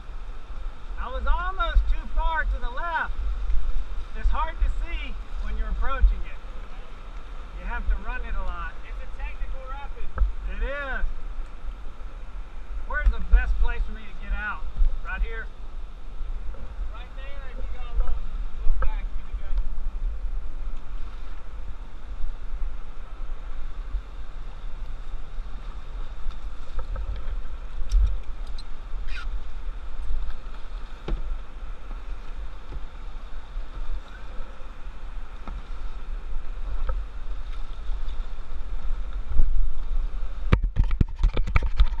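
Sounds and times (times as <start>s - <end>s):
river water rushing: 0.0s - 40.5s
paddle knocking against hull: 30.5s - 32.9s.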